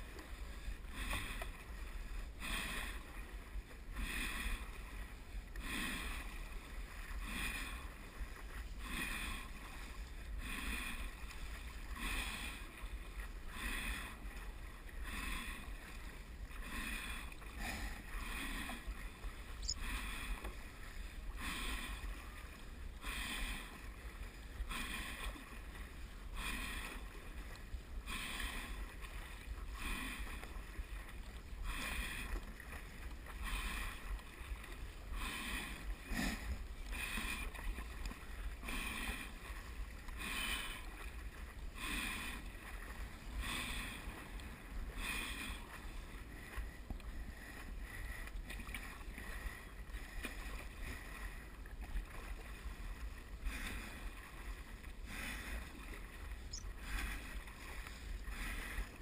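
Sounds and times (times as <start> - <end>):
paddle strokes splashing water: 0.0 - 59.0
steady low rumble: 13.8 - 24.6.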